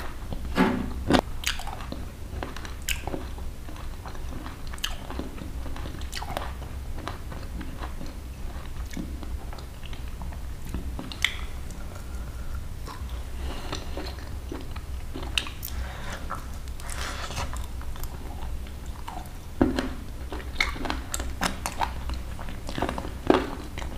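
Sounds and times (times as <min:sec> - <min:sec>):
person chewing and biting food: 0:01.1 - 0:23.9
wet mouth clicks: 0:01.4 - 0:01.7, 0:11.1 - 0:11.5.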